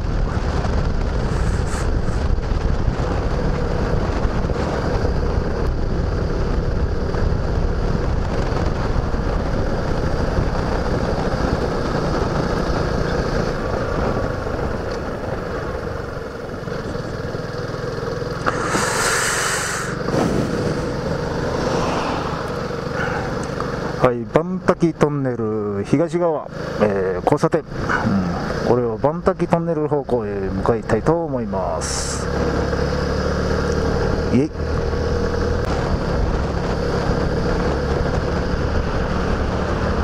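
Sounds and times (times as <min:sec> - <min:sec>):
wind rumble on microphone: 0:00.0 - 0:17.8, 0:19.9 - 0:24.0, 0:32.4 - 0:40.0
motorcycle engine running: 0:00.0 - 0:25.2, 0:26.4 - 0:40.0
brief hiss: 0:18.4 - 0:20.9.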